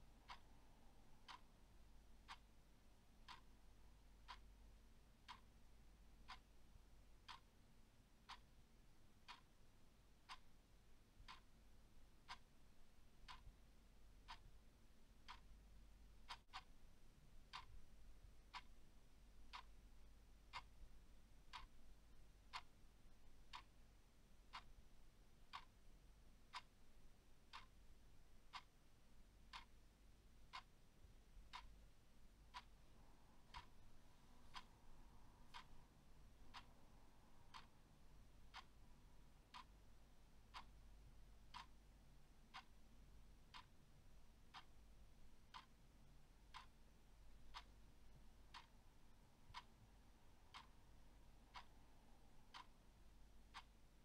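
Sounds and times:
clock ticking: 0:00.0 - 0:54.0.

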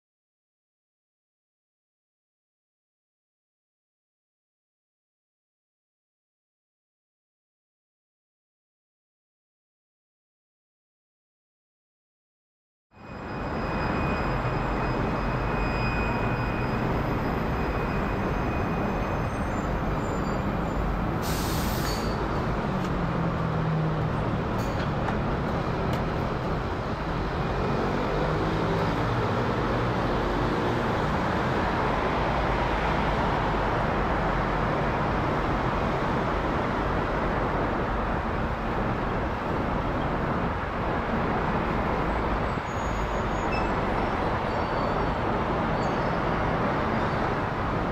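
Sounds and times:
brief hiss: 0:21.2 - 0:22.2.

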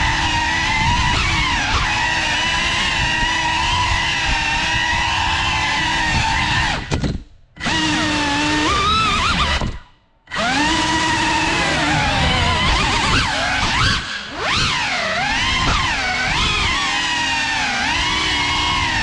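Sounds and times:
quadcopter motors whining: 0:10.3 - 0:19.0.

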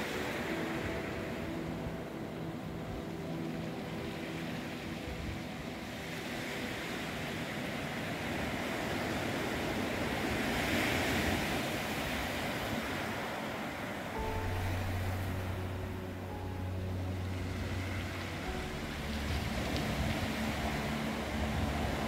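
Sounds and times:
waves washing up a pebble beach: 0:03.0 - 0:16.0, 0:17.2 - 0:22.0
low steady hum: 0:14.2 - 0:22.0.

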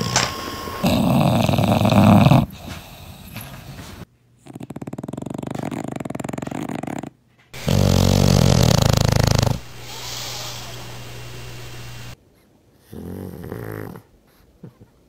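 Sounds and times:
drawn-out breath with low hum: 0:00.0 - 0:04.0, 0:07.6 - 0:12.9
dog snoring: 0:00.0 - 0:12.2, 0:12.8 - 0:14.1.

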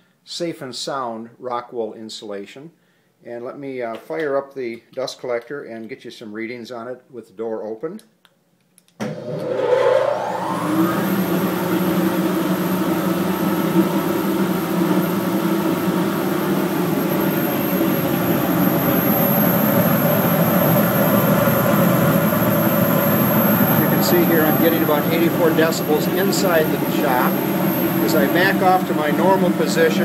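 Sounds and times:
dust collector motor whining: 0:09.0 - 0:30.0.

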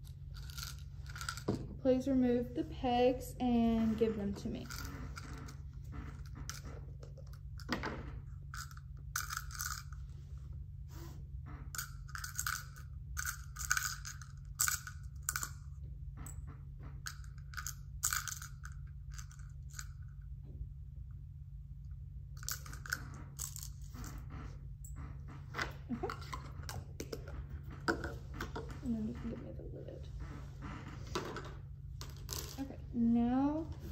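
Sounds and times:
plastic pegs clicking and clattering: 0:17.0 - 0:20.1.

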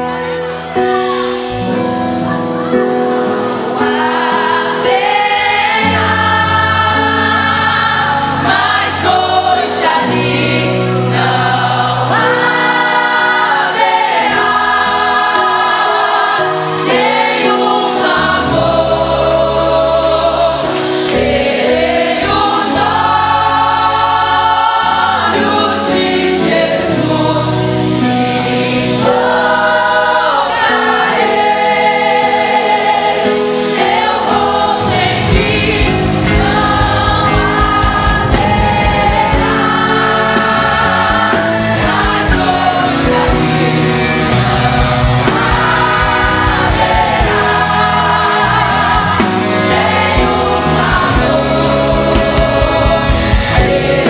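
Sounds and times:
choir singing gospel: 0:00.0 - 0:54.0
low bass notes: 0:34.5 - 0:54.0.

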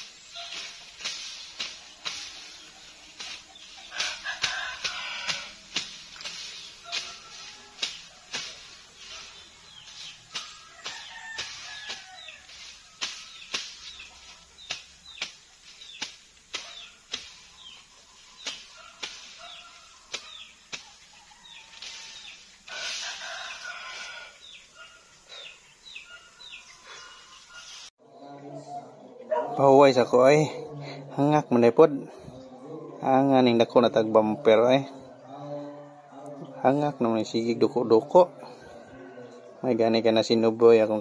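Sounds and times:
machete swishing through grass: 0:00.0 - 0:24.8
cut grass rustling: 0:00.0 - 0:27.9.

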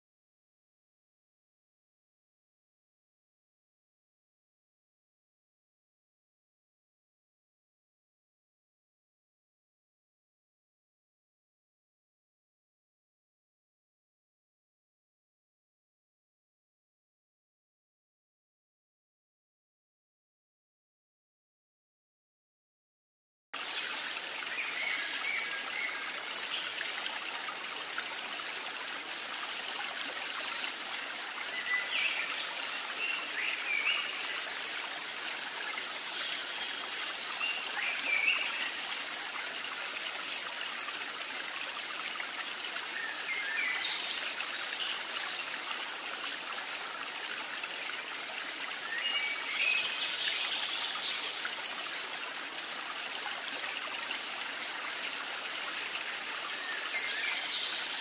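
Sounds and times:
trickling stream water: 0:23.6 - 0:58.0.

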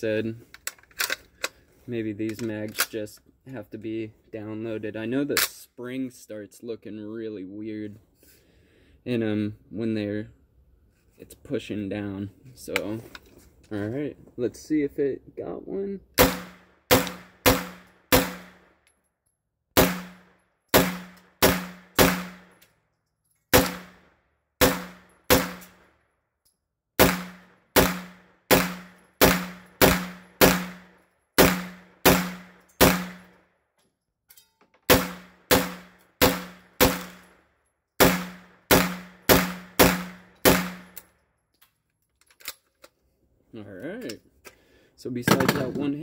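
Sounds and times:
pistol shots: 0:16.2 - 0:18.7, 0:19.8 - 0:22.6, 0:23.5 - 0:25.8, 0:27.0 - 0:33.3, 0:34.9 - 0:37.3, 0:38.0 - 0:41.0.

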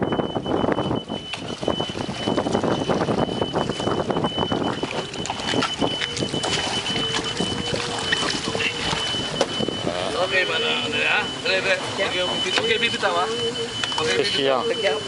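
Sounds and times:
wind buffeting microphone: 0:00.0 - 0:10.5
high-pitched whine: 0:00.0 - 0:15.0
water splashing and sloshing: 0:00.0 - 0:15.0
paddle digging into water: 0:04.8 - 0:09.4.

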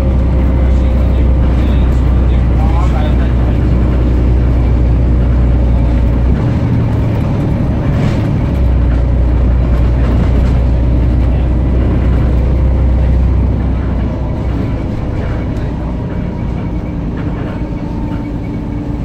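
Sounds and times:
bus diesel engine droning: 0:00.0 - 0:19.0.

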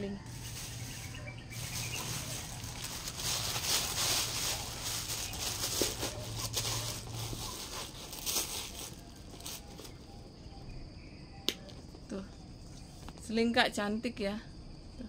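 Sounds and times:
stuffing rustling and crinkling: 0:00.0 - 0:10.3.

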